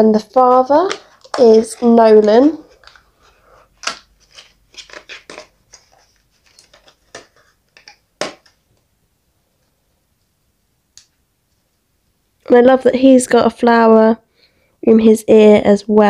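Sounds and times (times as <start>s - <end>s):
packaging clicks and crackles: 0.2s - 8.6s.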